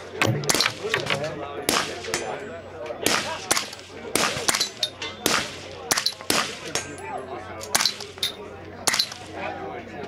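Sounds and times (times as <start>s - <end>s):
gunfire from other lanes: 1.6s - 2.4s, 3.0s - 6.9s, 8.8s - 9.3s
suppressed rifle shots: 1.6s - 2.4s, 3.0s - 6.9s, 8.8s - 9.3s.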